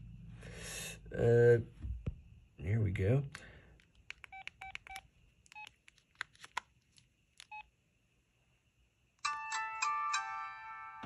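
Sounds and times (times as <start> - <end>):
phone keypad beeps: 4.2 - 5.8, 7.5 - 7.7.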